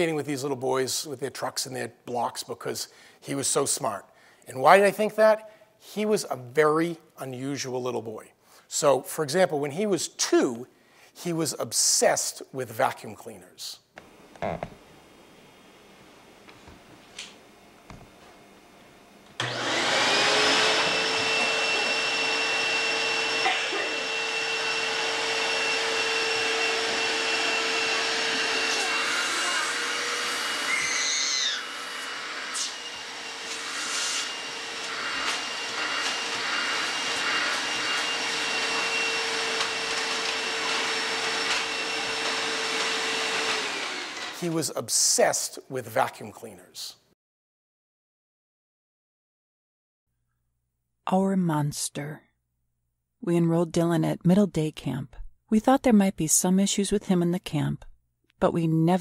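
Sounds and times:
vacuum cleaner motor whine: 0:19.3 - 0:44.5.

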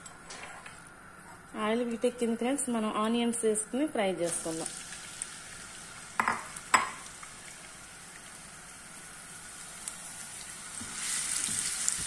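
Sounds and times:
onions sizzling in hot oil: 0:04.2 - 0:12.0.

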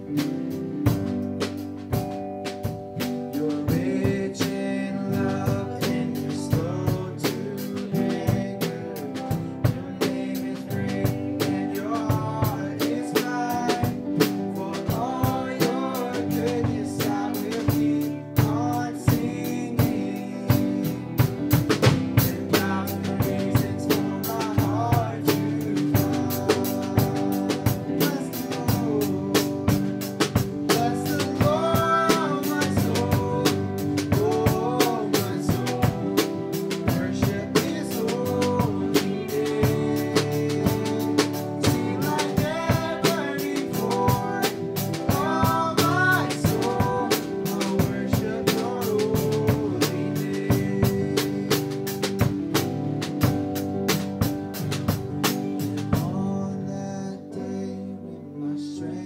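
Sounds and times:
drum kit beat: 0:00.0 - 0:56.4
strummed guitars: 0:00.0 - 0:58.0
keyboard: 0:00.0 - 0:59.0
voices singing: 0:03.2 - 0:52.8.

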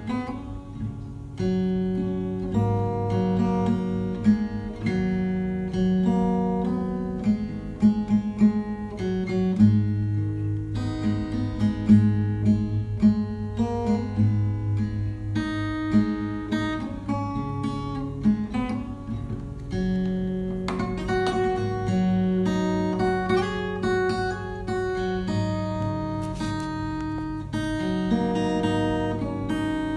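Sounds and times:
acoustic guitar plucked notes: 0:00.0 - 0:29.9.

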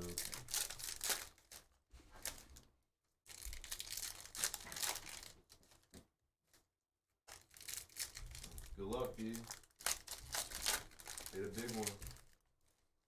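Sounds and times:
foil wrapper tearing and crinkling: 0:00.0 - 0:02.6, 0:03.3 - 0:05.6, 0:07.3 - 0:12.4.

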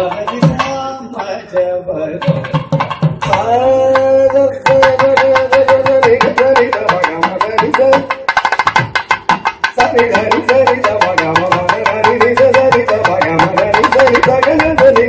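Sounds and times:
mridangam drumming: 0:00.0 - 0:15.0.

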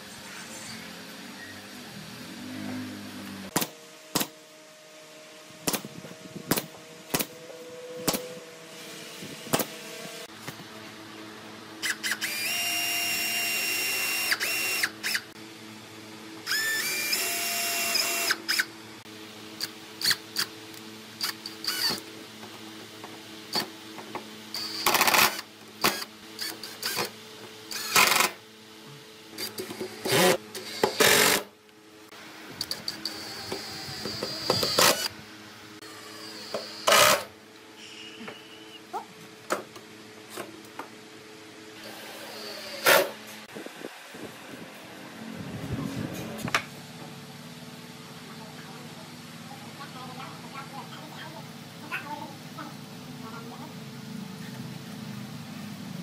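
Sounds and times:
drill boring into wood: 0:11.8 - 0:15.3, 0:16.4 - 0:18.7, 0:21.2 - 0:22.0, 0:24.5 - 0:27.1, 0:27.7 - 0:28.4, 0:29.4 - 0:31.5, 0:32.6 - 0:35.2, 0:35.8 - 0:37.3, 0:41.8 - 0:43.1
impact driver driving screws: 0:27.7 - 0:28.4, 0:36.4 - 0:37.3.

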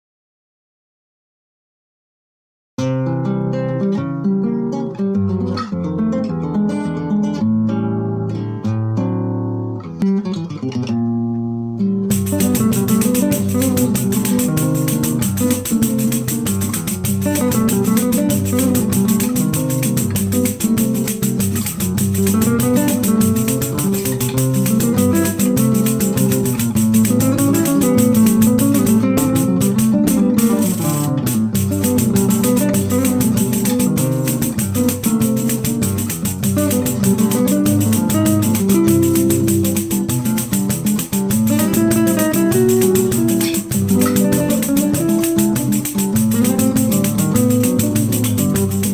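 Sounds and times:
classical guitars playing: 0:02.8 - 0:48.9
pandeiro samba rhythm: 0:02.8 - 0:48.9.

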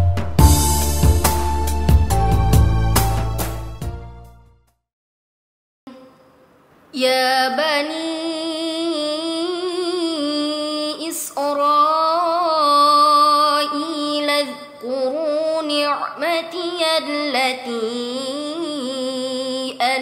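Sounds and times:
woman reciting melodically: 0:06.9 - 0:20.0.

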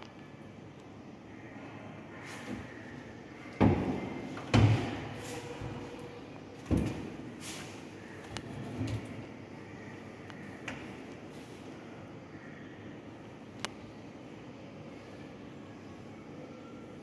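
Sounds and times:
wooden cabinet doors knocking shut: 0:03.6 - 0:05.0.

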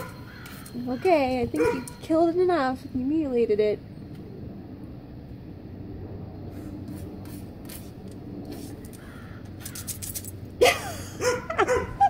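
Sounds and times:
bird harsh calls: 0:00.0 - 0:02.0, 0:08.9 - 0:10.0.

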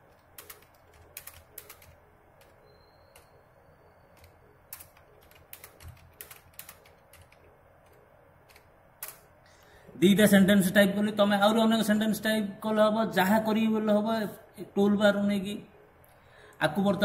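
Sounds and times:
typing on computer keyboard: 0:00.0 - 0:03.4, 0:04.1 - 0:09.3.

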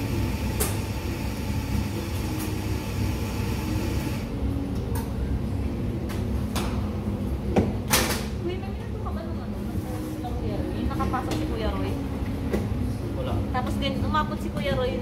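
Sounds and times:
espresso machine hissing: 0:00.0 - 0:04.3.

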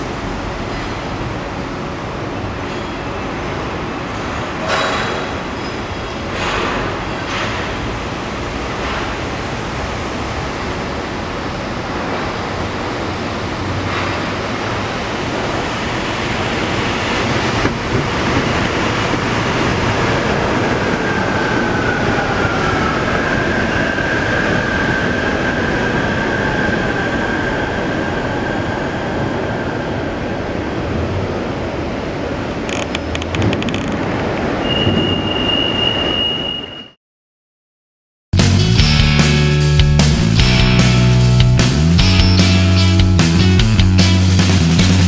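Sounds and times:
monorail train rumbling past: 0:00.0 - 0:36.6, 0:38.4 - 0:45.0
high whine: 0:38.4 - 0:45.0.

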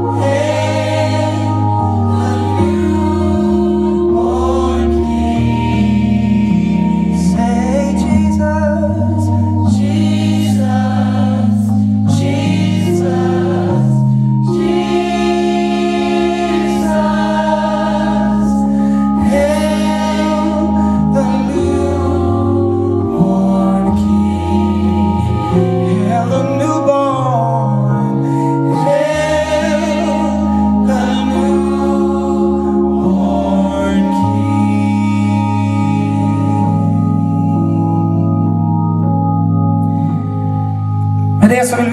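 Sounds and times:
choir singing: 0:00.0 - 0:39.1
organ chords: 0:00.0 - 0:41.9
men singing lead vocals: 0:09.7 - 0:27.8, 0:28.7 - 0:36.8.

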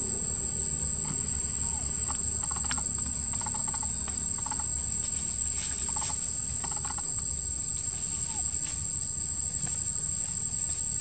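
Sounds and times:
insects droning: 0:00.0 - 0:11.0
faint chirps: 0:01.0 - 0:04.8.

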